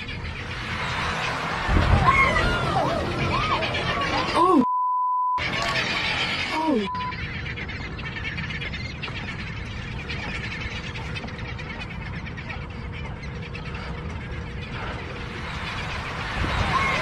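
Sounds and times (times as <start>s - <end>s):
seabirds chirping: 0.0s - 4.6s, 5.4s - 17.0s
steady low rumble: 6.9s - 17.0s.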